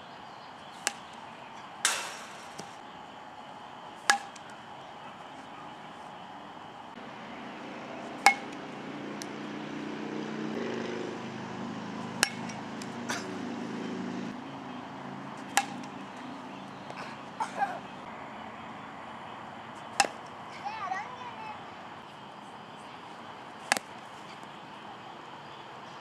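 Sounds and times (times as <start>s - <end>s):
metal bat hitting balls: 0.8s - 2.8s, 4.0s - 4.6s, 8.0s - 9.4s, 12.0s - 13.5s, 15.4s - 17.8s, 19.9s - 20.3s, 23.6s - 24.0s.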